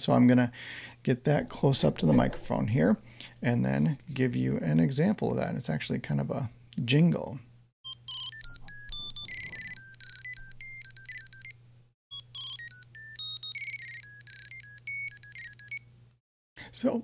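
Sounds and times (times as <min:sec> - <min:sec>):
electronic beeping jingle: 0:07.9 - 0:15.8.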